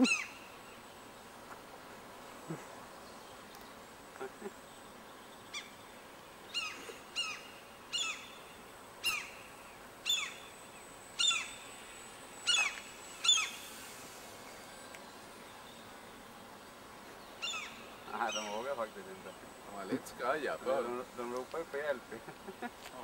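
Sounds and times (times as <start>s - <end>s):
gulls alarm calls: 0.0s - 0.4s, 6.5s - 10.5s, 11.2s - 11.7s, 12.4s - 13.6s, 17.4s - 19.1s.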